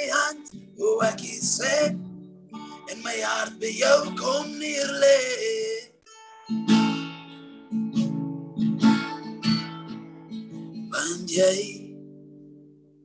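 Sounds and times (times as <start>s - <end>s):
man singing: 0.0s - 2.0s, 2.8s - 6.1s, 10.9s - 11.9s
acoustic guitar strumming: 0.0s - 13.0s.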